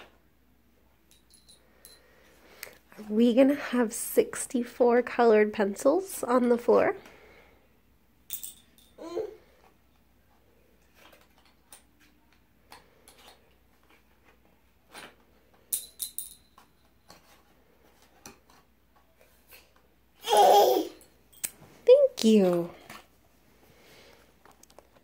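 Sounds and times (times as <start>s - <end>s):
wooden pencils clicking and clattering: 10.8s - 19.8s.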